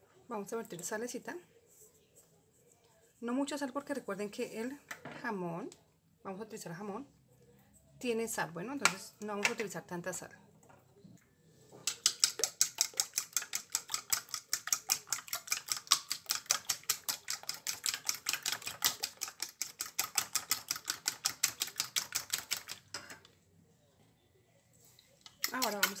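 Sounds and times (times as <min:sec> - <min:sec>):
fork beating eggs in a bowl: 0:11.8 - 0:23.3, 0:24.9 - 0:26.0.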